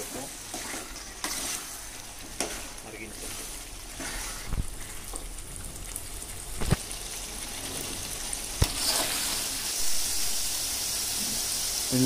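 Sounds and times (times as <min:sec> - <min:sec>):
curry sizzling in pan: 0:00.0 - 0:12.0.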